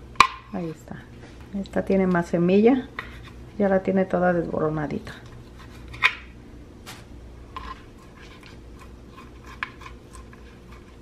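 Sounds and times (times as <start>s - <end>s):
knife scraping seeds: 7.5s - 11.0s.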